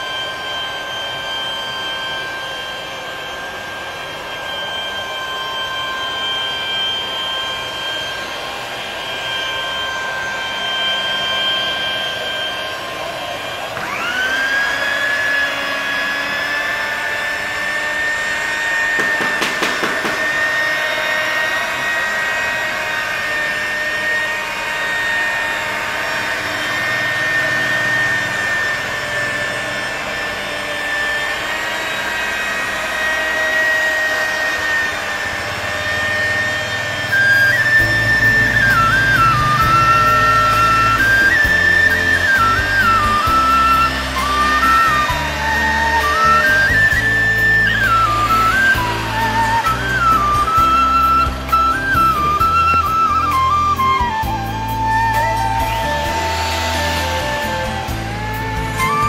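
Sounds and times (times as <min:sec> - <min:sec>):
electric polisher whining: 0:00.0 - 0:59.0.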